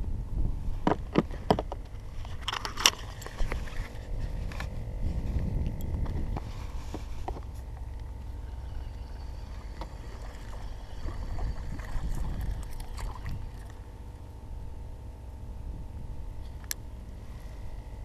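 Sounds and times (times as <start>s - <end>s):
wind rumble on microphone: 0.0s - 18.0s
water against canoe hull: 6.0s - 13.9s.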